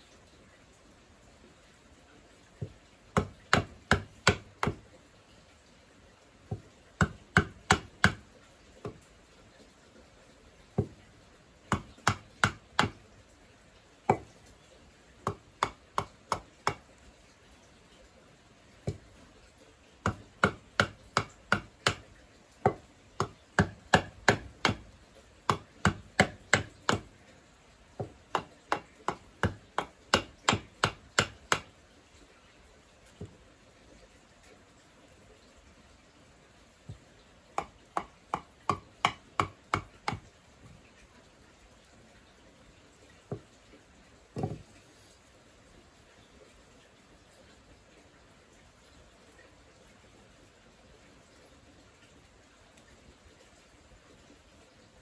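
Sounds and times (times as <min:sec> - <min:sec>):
hatchet chopping wood: 0:02.6 - 0:04.9, 0:06.5 - 0:09.0, 0:10.8 - 0:11.0, 0:11.7 - 0:13.1, 0:14.1 - 0:14.3, 0:15.2 - 0:16.9, 0:18.8 - 0:19.2, 0:20.0 - 0:27.2, 0:28.0 - 0:31.7, 0:37.6 - 0:40.3, 0:44.4 - 0:44.6.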